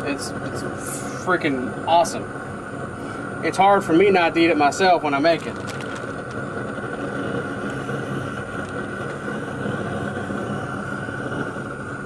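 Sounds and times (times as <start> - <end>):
machine drone with high whine: 0.0 - 12.0.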